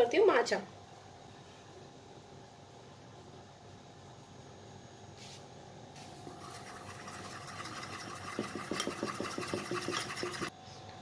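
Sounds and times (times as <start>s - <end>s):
spoon scraping against bowl: 6.5s - 10.5s.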